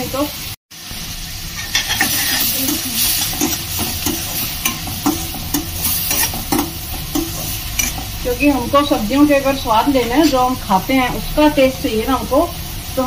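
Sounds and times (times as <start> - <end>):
onions sizzling in oil: 0.0 - 13.0
steel ladle scraping pan: 1.5 - 8.3, 10.0 - 10.6.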